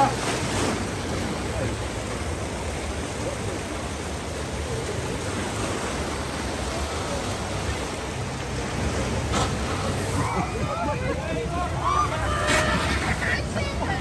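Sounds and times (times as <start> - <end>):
rushing churning water: 0.0 - 14.0.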